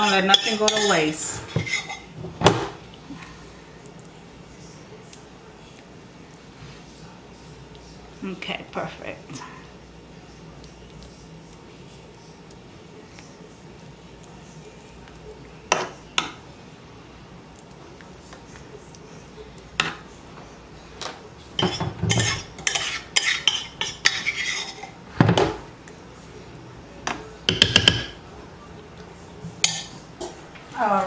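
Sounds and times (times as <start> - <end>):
metal spoon clinking dishes: 0.0 - 2.1, 21.6 - 25.0, 27.5 - 28.2, 29.6 - 30.4.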